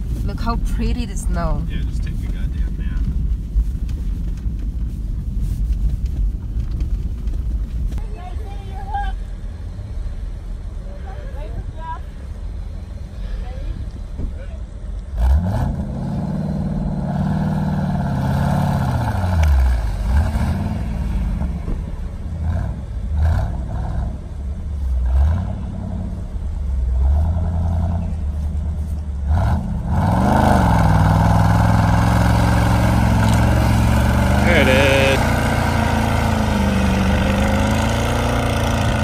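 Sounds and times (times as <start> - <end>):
off-road vehicle engines revving: 8.0 - 39.0.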